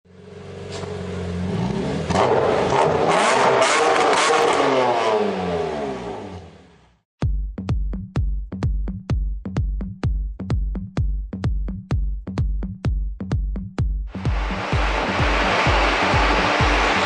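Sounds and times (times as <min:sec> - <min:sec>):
car engine revving: 0:00.2 - 0:07.0, 0:14.1 - 0:17.0
electronic dance beat: 0:07.2 - 0:17.0.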